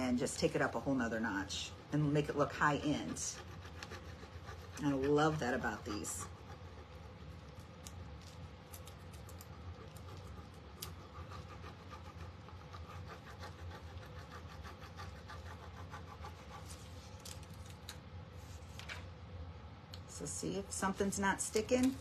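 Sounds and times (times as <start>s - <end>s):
stick scratching on plastic sheet: 1.1s - 18.7s.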